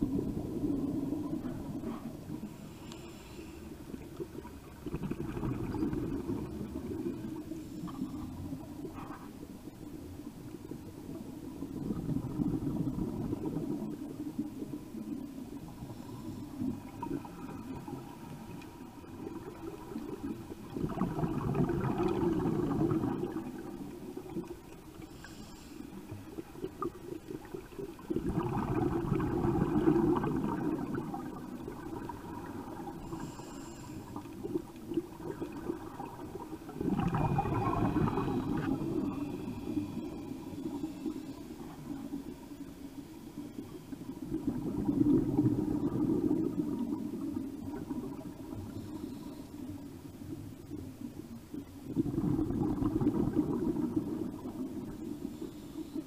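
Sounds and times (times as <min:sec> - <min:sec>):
gurgling exhaled bubbles: 0:00.0 - 0:02.6, 0:03.8 - 0:09.3, 0:11.1 - 0:25.0, 0:26.0 - 0:42.4, 0:43.4 - 0:49.0, 0:49.7 - 0:55.5
hissing regulator inhalations: 0:01.8 - 0:03.9, 0:25.0 - 0:26.3, 0:33.0 - 0:34.4.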